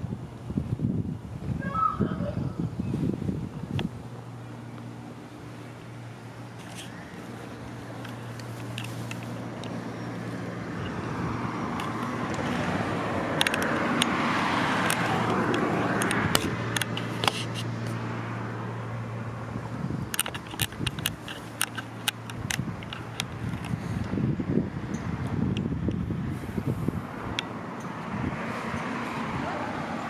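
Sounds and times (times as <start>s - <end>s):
car passing by: 8.8s - 19.8s, 26.2s - 30.0s.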